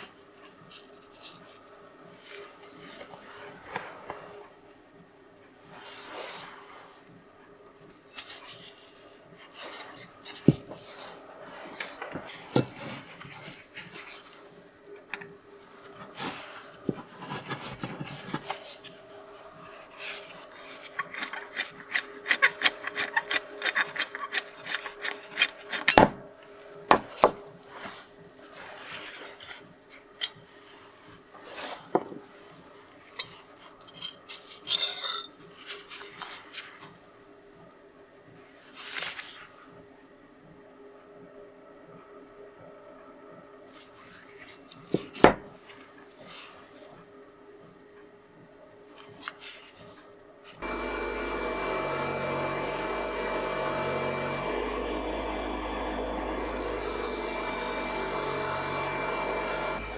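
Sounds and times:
screwdriver scraping and clicking: 20.0s - 26.1s.

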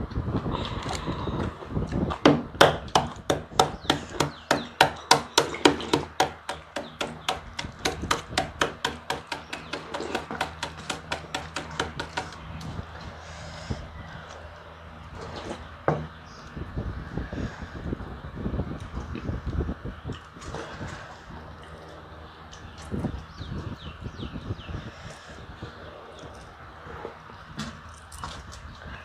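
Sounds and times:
rapid sharp knocks: 2.3s - 12.4s.

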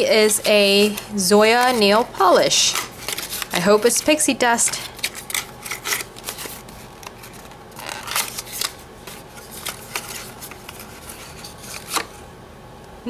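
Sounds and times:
cardboard carton being handled: 0.0s - 4.2s.

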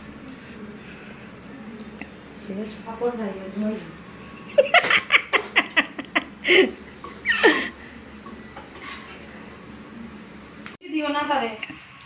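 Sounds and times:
person laughing: 4.5s - 7.8s.

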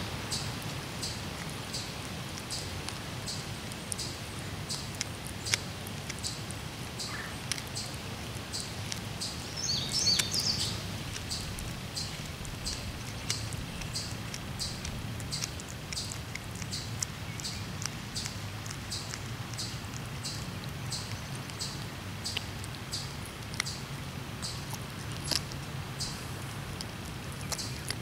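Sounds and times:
cat chewing with crunches: 0.0s - 28.0s
bird chirping: 7.0s - 23.8s, 24.4s - 26.3s, 27.4s - 28.0s.

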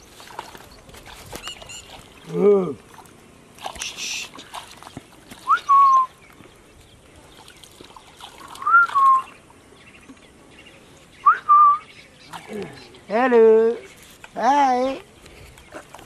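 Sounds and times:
man whistling: 5.4s - 6.2s, 8.6s - 9.4s, 11.2s - 11.9s.

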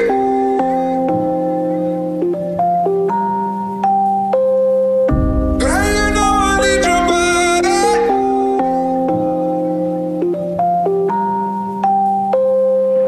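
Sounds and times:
electronic lead melody: 0.0s - 12.7s
sustained synth chord: 5.1s - 10.6s.

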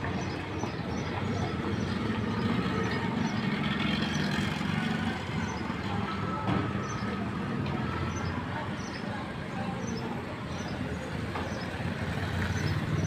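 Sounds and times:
motorcycles passing: 0.0s - 13.0s.

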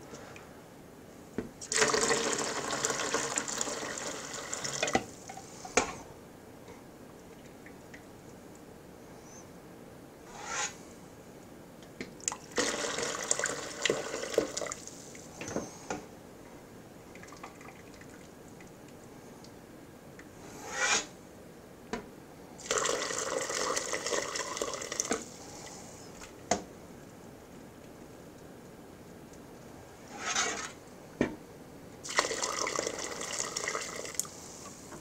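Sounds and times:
stock pouring through strainer: 1.6s - 4.9s, 22.6s - 25.3s.

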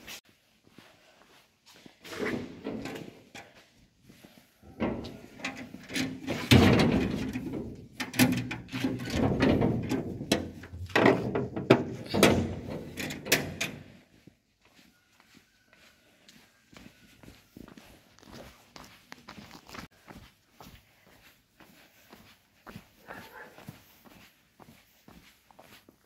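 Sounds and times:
handling knocks and scrapes: 2.0s - 3.6s, 4.6s - 13.9s.

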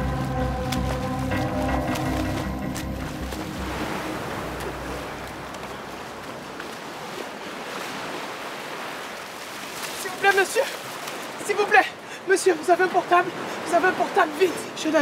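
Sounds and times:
musical tones: 0.0s - 5.9s
sea water splashing: 0.0s - 15.0s.

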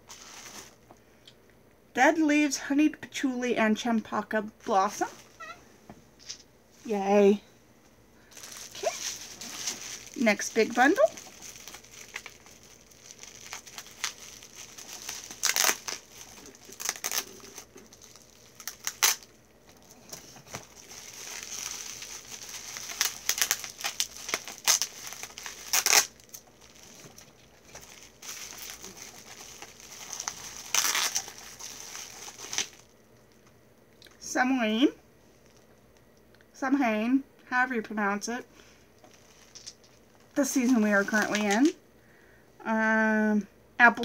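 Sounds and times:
packaging crinkling and tearing: 8.3s - 33.5s, 39.0s - 41.8s.

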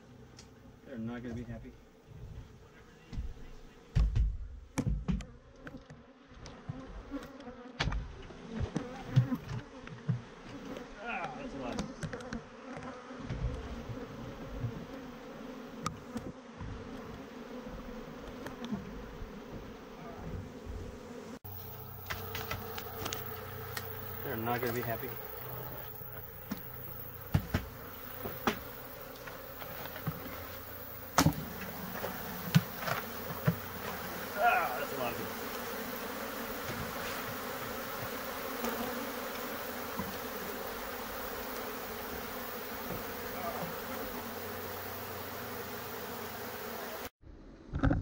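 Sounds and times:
honeybees buzzing: 0.0s - 47.2s
sharp knocks: 4.0s - 5.3s, 27.3s - 28.6s.

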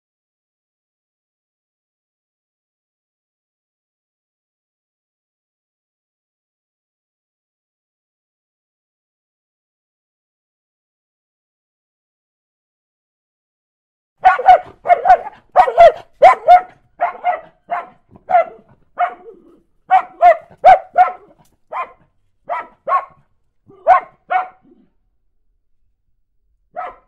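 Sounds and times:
dog barking alarm: 14.2s - 19.3s, 19.9s - 23.2s, 23.8s - 24.6s, 26.8s - 27.0s.

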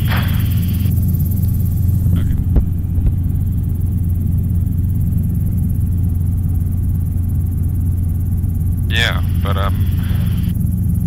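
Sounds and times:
helicopter engine and rotor drone: 0.0s - 11.0s.

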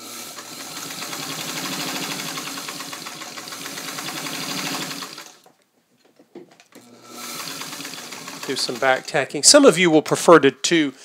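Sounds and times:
sewing machine stitching: 0.0s - 5.5s, 6.7s - 9.2s.

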